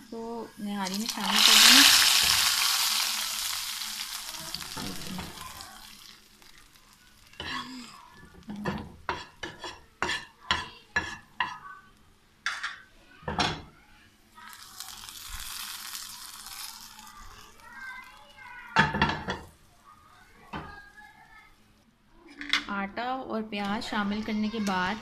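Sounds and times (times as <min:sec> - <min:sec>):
hot oil sizzling: 0:00.4 - 0:11.5, 0:14.4 - 0:21.4
spoon scraping a pan: 0:08.5 - 0:11.7.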